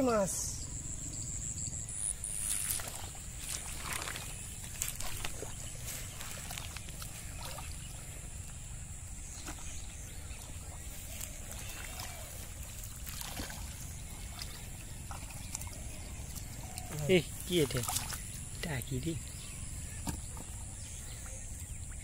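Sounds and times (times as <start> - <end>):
steady low rumble: 0.0 - 11.4
splashing in muddy water: 2.3 - 22.0
water drips: 11.2 - 19.4.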